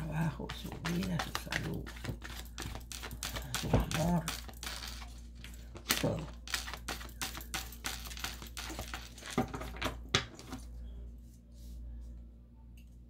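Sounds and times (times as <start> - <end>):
cards being shuffled: 0.0 - 10.6.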